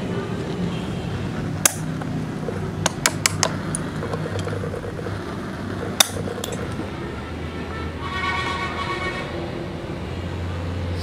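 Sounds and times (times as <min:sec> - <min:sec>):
pliers clicking: 0:06.0 - 0:06.8.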